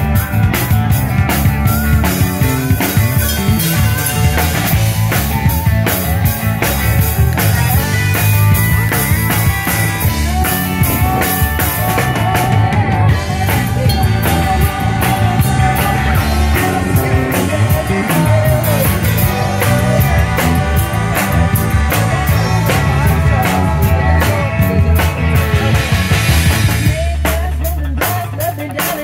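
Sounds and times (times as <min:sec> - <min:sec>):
drum kit beat: 0:00.0 - 0:29.0
rock band playing: 0:00.0 - 0:29.0
woman singing: 0:10.2 - 0:25.1.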